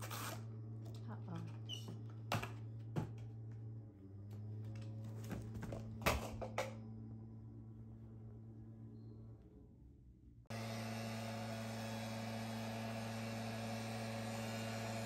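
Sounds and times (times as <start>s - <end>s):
handling knocks and rustles: 4.7s - 6.8s.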